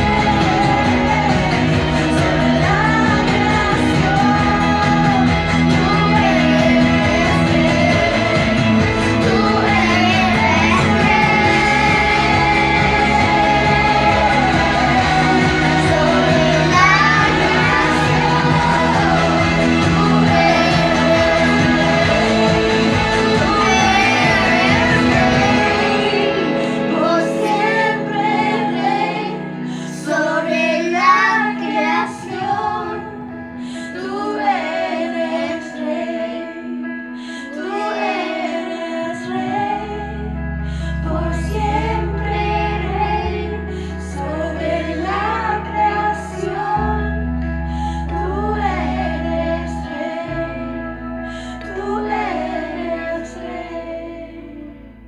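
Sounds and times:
child singing: 0.0s - 29.4s, 30.0s - 33.2s, 37.6s - 40.1s, 41.1s - 43.6s
low held backing chords: 0.0s - 55.0s.

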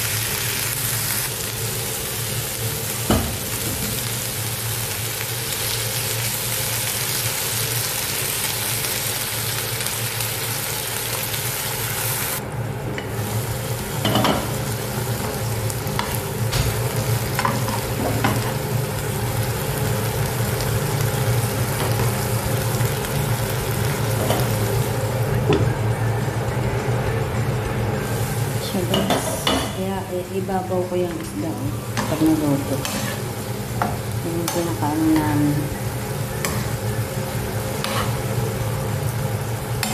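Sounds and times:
green beans sizzling in a frying pan: 0.0s - 12.4s, 13.0s - 39.9s
utensil scraping against pan: 32.0s - 33.3s, 37.8s - 38.2s.

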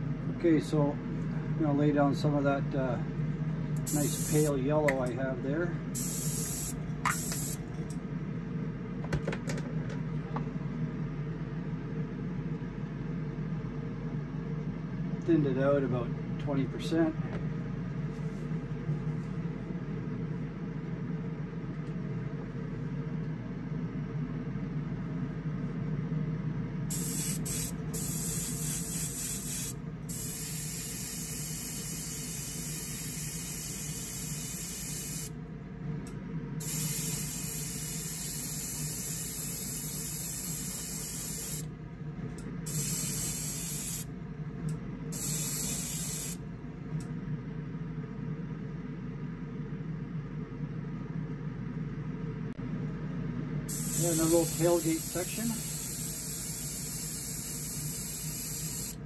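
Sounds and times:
steady low hum: 0.0s - 59.0s
airbrush spraying hiss: 3.9s - 4.6s, 6.0s - 7.6s, 26.9s - 35.3s, 36.6s - 41.7s, 42.7s - 44.1s, 45.1s - 46.4s, 53.7s - 59.0s.

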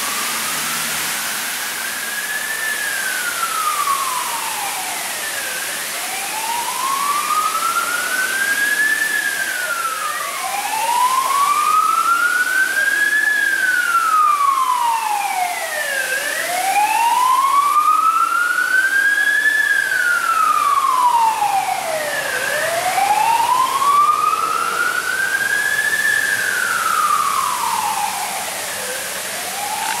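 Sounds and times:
emergency vehicle siren wailing: 0.0s - 30.0s
city traffic hum: 20.3s - 30.0s.

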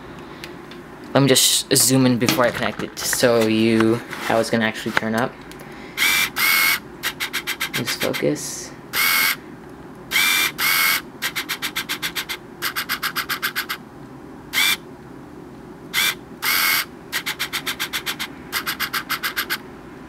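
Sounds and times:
autofocus lens motor ticking: 6.0s - 7.8s, 8.9s - 9.4s, 10.1s - 13.8s, 14.5s - 14.8s, 16.0s - 19.6s
lens motor buzzing whir: 6.0s - 7.8s, 8.9s - 9.4s, 10.1s - 13.8s, 14.5s - 14.8s, 15.9s - 19.6s.

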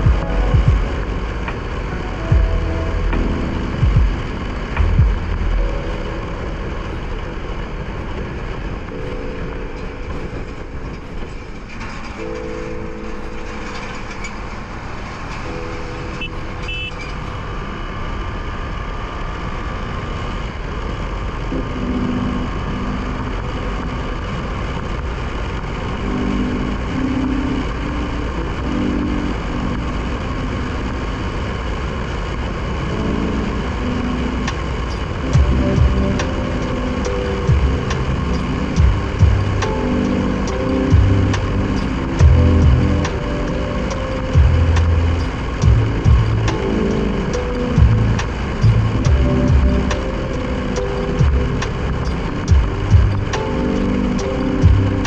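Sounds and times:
motorcycle engine running: 0.0s - 9.1s, 34.0s - 55.0s
riding wind noise: 0.0s - 55.0s
steady shifting tones: 0.0s - 55.0s.

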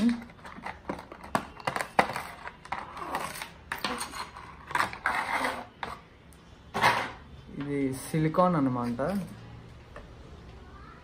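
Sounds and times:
plastic packaging clicks and rustles: 0.0s - 3.9s.

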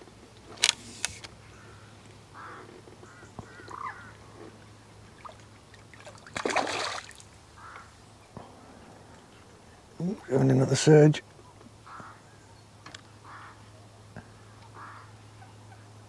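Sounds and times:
fish splashing at surface: 5.2s - 7.4s.

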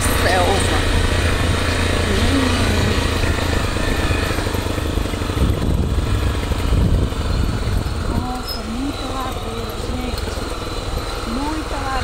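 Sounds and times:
motorcycle engine running: 0.0s - 12.0s
wind rumble on microphone: 0.7s - 9.3s.

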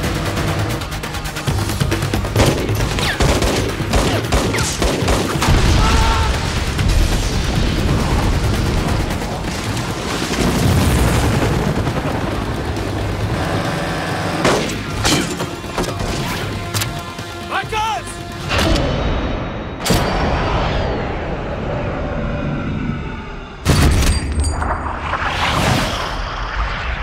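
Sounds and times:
background music: 0.0s - 24.7s
booming blasts: 3.9s - 13.3s.

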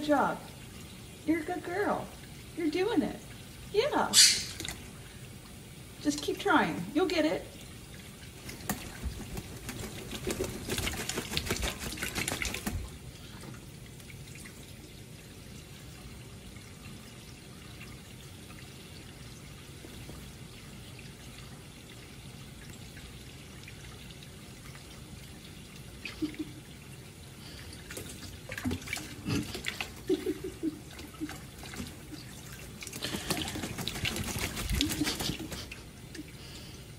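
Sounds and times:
parrot splashing and flapping: 4.2s - 5.0s, 8.0s - 13.2s, 27.4s - 36.0s.

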